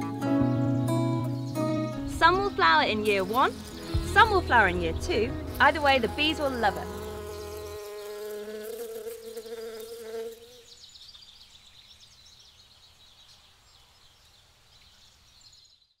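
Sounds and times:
bumblebee buzzing: 1.6s - 10.7s.

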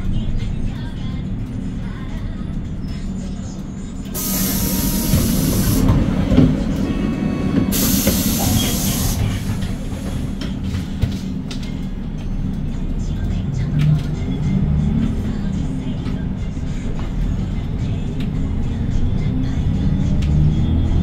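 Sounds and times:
bus engine low rumble: 0.0s - 21.0s
compressed-air hiss: 4.2s - 5.9s, 7.7s - 10.1s.

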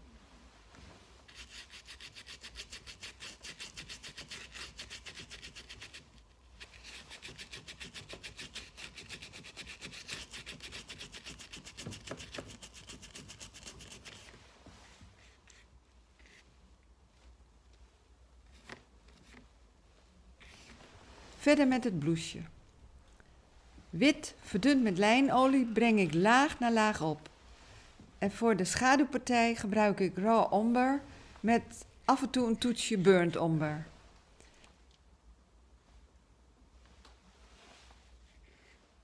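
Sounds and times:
paintbrush scrubbing on canvas: 1.2s - 16.5s.

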